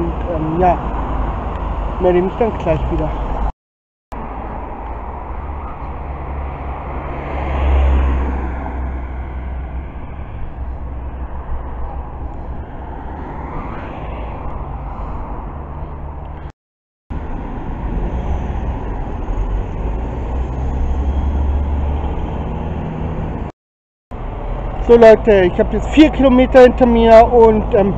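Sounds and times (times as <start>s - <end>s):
road traffic: 0.0s - 27.9s
car passing: 4.2s - 16.5s
wind rumble on microphone: 7.8s - 16.5s.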